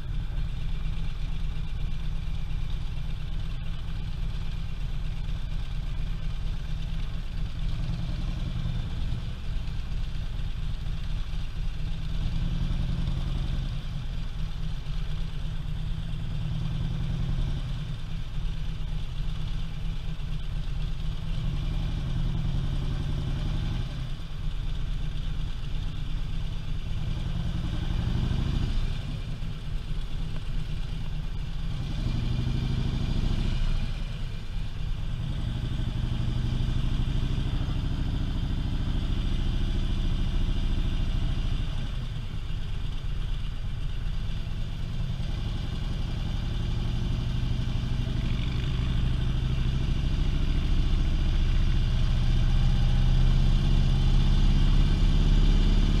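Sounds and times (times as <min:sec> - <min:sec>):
motorcycle engine rumbling: 0:00.0 - 0:55.4.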